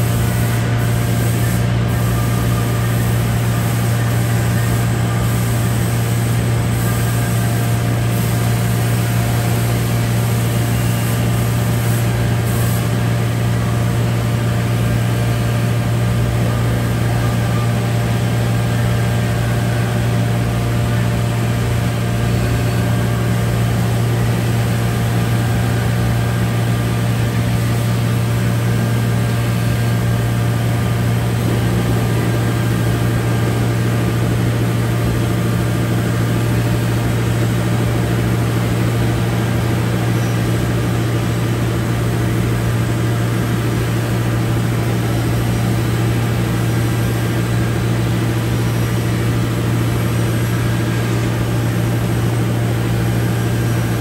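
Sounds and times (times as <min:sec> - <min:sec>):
electric machinery hum: 0:00.0 - 0:54.0.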